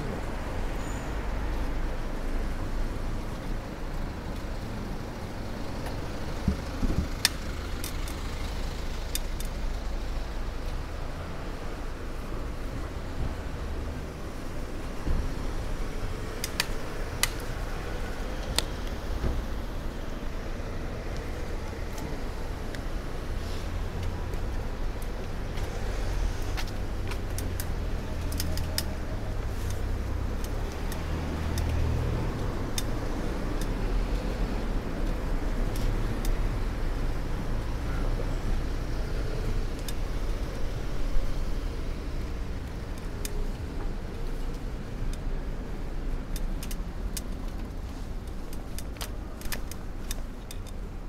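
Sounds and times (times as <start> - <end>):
wind and road rumble: 0.0 - 51.0
bicycle clicks and rattling: 5.2 - 9.7, 15.5 - 19.1, 21.0 - 37.4, 38.7 - 51.0.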